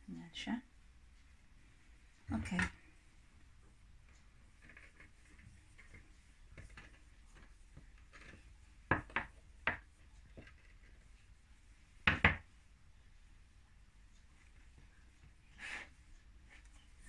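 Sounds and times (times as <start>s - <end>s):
rubbing of pastry dough: 4.0s - 12.1s, 14.0s - 17.0s
rolling pin knocking on ceramic dish: 8.9s - 10.5s, 12.1s - 12.4s.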